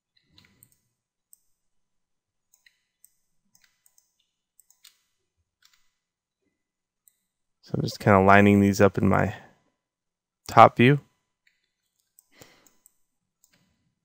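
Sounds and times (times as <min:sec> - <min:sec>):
faint mouse and keyboard clicks: 0:00.2 - 0:01.5, 0:02.5 - 0:06.0.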